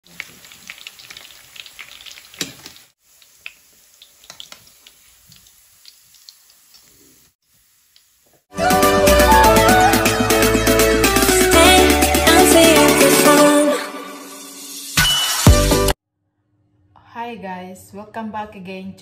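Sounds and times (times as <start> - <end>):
deep-frying sizzle with pops: 0.0 - 8.5.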